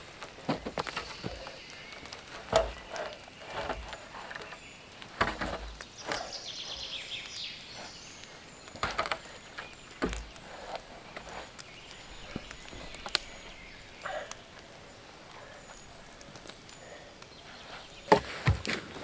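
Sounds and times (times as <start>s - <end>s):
branch knocking and thudding: 5.2s - 6.3s, 8.7s - 10.4s.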